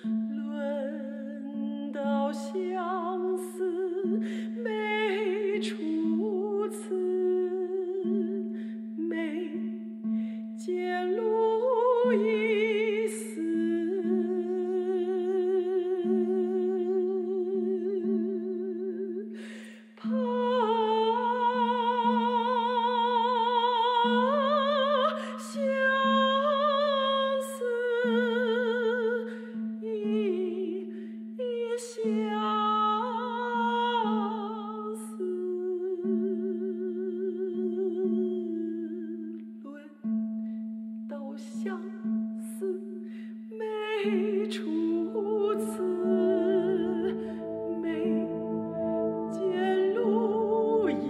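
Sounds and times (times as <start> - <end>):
woman singing with vibrato: 0.0 - 8.4, 9.0 - 9.6, 10.6 - 19.2, 20.0 - 29.2, 43.6 - 51.0
low sustained synthesizer note: 44.9 - 51.0.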